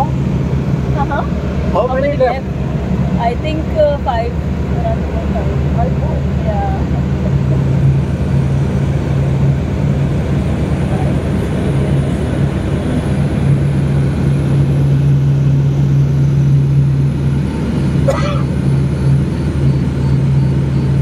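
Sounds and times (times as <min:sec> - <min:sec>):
light aircraft engine drone: 0:00.0 - 0:21.0.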